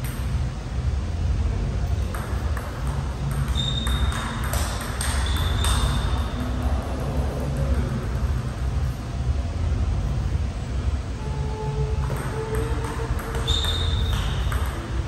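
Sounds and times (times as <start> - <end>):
low hum: 0.0 - 15.0
table tennis ball clicking: 2.0 - 6.5, 12.0 - 15.0
short high squeaks: 3.5 - 4.3, 13.4 - 14.5.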